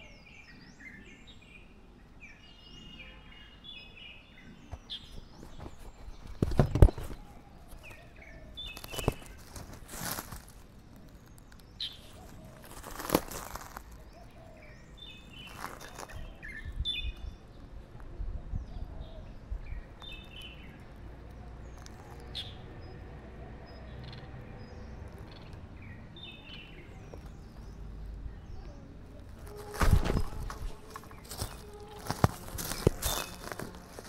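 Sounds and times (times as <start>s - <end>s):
small birds chirping: 0.0s - 34.0s
low outdoor rumble: 7.2s - 34.0s.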